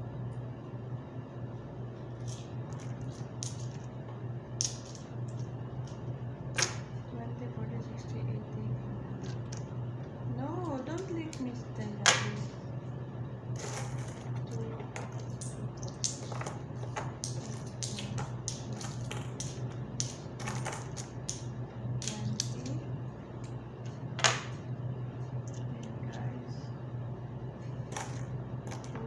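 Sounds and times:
coins clinking: 0:13.6 - 0:22.6.

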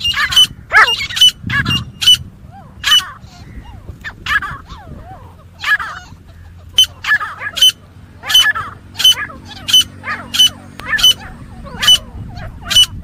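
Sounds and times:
francolin fighting call: 0:00.0 - 0:13.0
lower chattering bird notes: 0:00.0 - 0:13.0.

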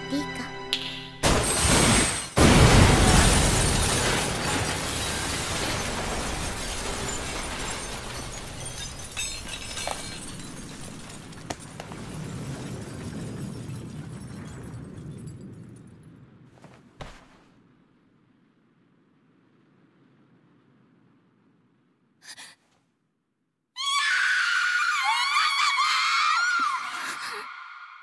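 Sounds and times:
chandelier crashing and shattering: 0:01.2 - 0:14.6
clatter of falling debris: 0:01.2 - 0:17.4.

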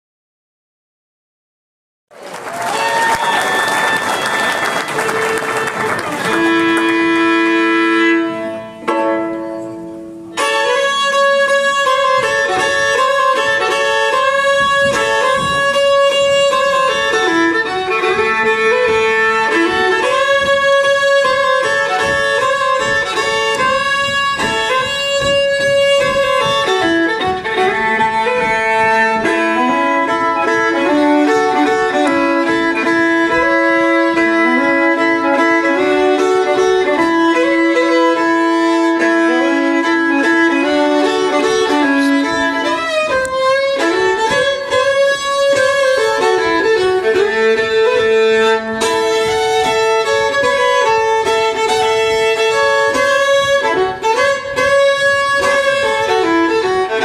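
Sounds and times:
applause: 0:02.1 - 0:07.3
fiddle playing fast tune: 0:02.6 - 0:57.0.

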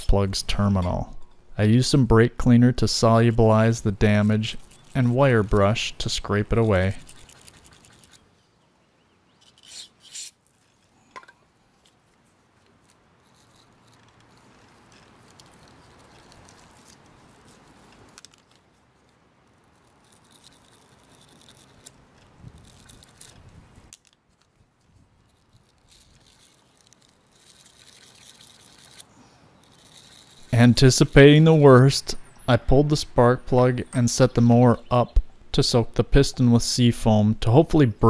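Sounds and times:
wire brush scrubbing metal: 0:02.4 - 0:08.2.

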